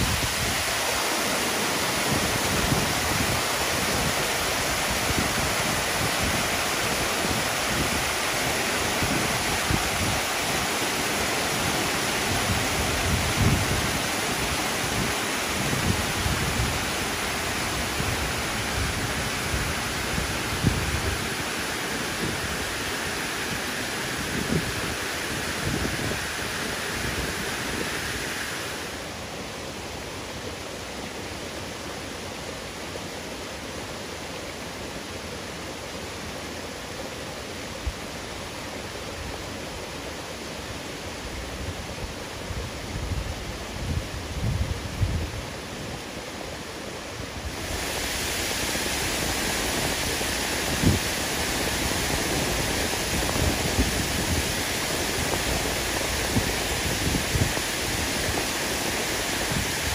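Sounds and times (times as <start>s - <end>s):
wind rumble on microphone: 0.0s - 0.8s, 2.0s - 10.6s, 11.4s - 22.9s, 23.5s - 28.9s, 41.6s - 45.6s, 47.4s - 59.9s
waterfall rushing: 0.0s - 59.9s.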